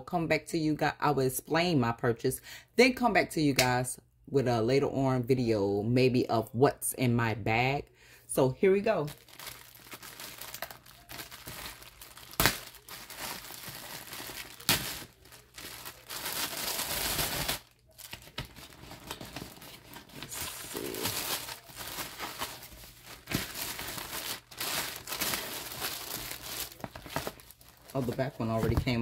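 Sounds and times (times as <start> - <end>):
plastic wrapping crinkling: 9.0 - 29.0.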